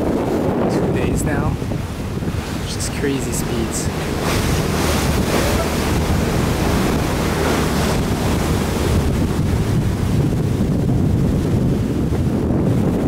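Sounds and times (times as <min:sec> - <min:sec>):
sea rushing along ship hull: 0:00.0 - 0:13.0
wind buffeting microphone: 0:00.0 - 0:13.0.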